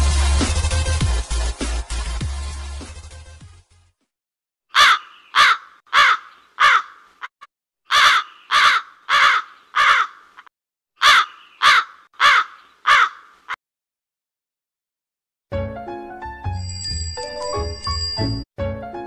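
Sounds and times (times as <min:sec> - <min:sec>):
crow cawing: 0:04.7 - 0:07.3, 0:07.9 - 0:13.6.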